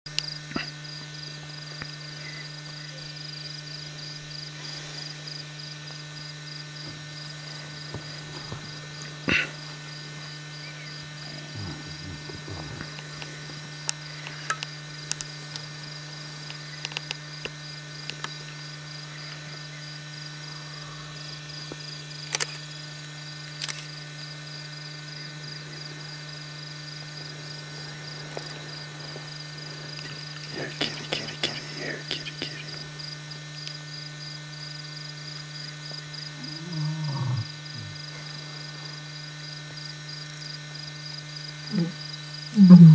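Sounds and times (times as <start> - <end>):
low electrical hum: 0.1 - 42.9
cricket chirping: 0.2 - 42.9.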